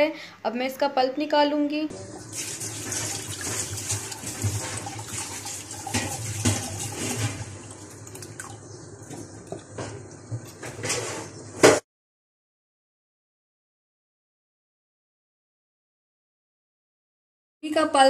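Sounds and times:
water pouring through strainer: 0:01.9 - 0:09.2.

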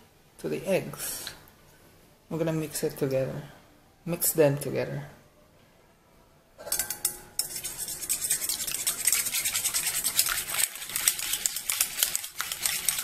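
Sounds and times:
whisk scraping metal bowl: 0:06.8 - 0:13.0.

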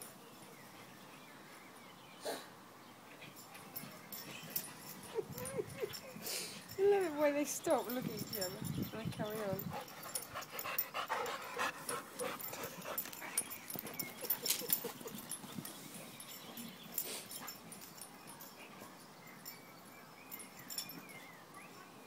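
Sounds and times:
dogs play-fighting: 0:03.0 - 0:06.8, 0:09.3 - 0:19.5.

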